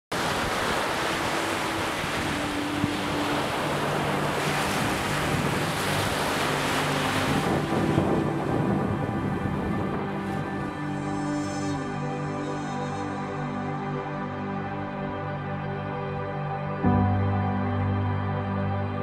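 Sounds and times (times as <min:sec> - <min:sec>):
ocean surf washing: 0:00.1 - 0:14.7.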